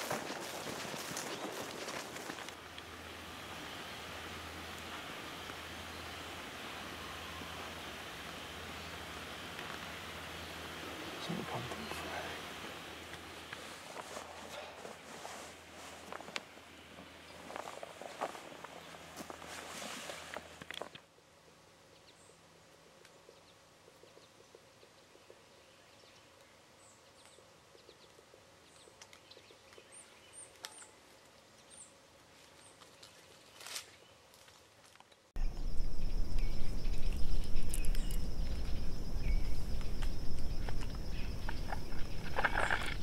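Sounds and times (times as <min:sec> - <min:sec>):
faint bird chirps: 0:35.4 - 0:43.0
high insect trill: 0:35.4 - 0:43.0
low rumble: 0:35.4 - 0:43.0.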